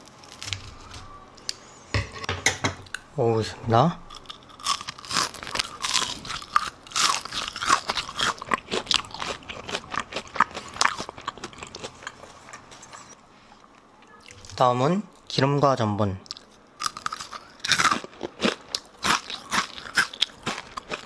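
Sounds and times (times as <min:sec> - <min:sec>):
crunchy chewing of fried food: 0:04.1 - 0:13.2, 0:16.3 - 0:21.0.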